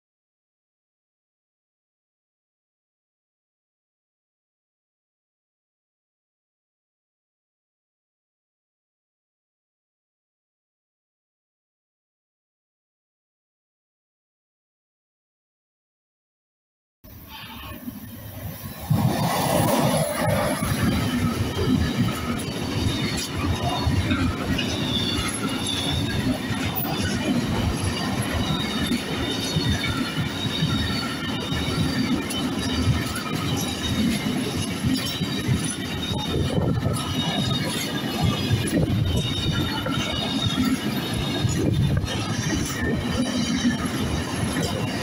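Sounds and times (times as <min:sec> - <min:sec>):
train wheels rumbling on rails: 0:17.1 - 0:45.0.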